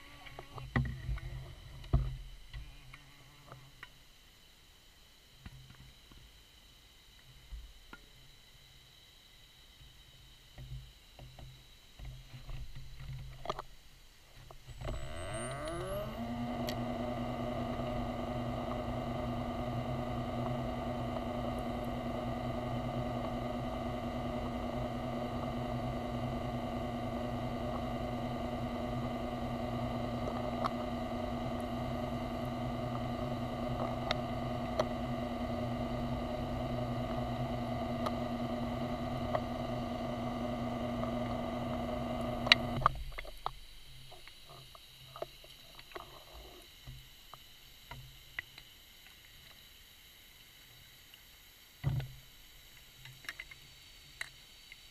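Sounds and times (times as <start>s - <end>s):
electric motor humming underwater: 14.7s - 43.5s
sharp clicks: 30.0s - 30.9s, 41.8s - 43.6s.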